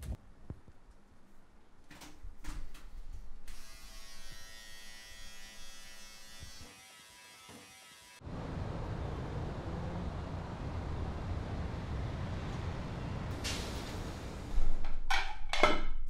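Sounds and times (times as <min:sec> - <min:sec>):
electric beard trimmer buzzing: 0:03.5 - 0:08.2.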